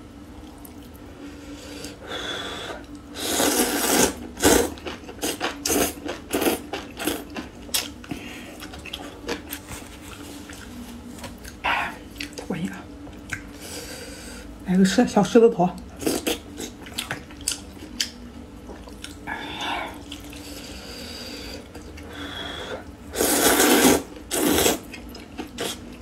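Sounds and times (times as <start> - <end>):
noodles slurped: 3.2 - 7.9, 23.1 - 25.8.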